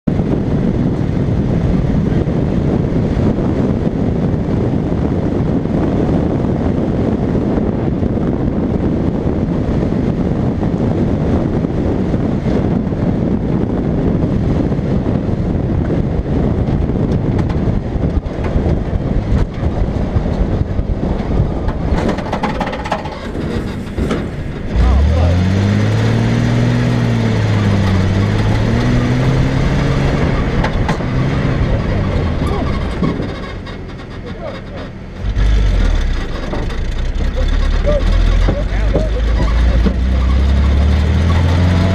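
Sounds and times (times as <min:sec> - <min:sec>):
vehicle rumbling over rough ground: 0:00.0 - 0:41.9
wind buffeting microphone: 0:00.0 - 0:41.9
knocks and rattles: 0:17.1 - 0:25.6, 0:27.0 - 0:41.5.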